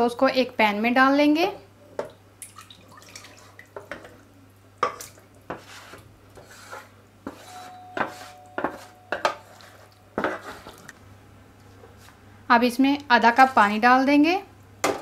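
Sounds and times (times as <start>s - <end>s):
spatula scraping metal tray: 5.5s - 10.9s
short ringing tone: 7.4s - 9.4s.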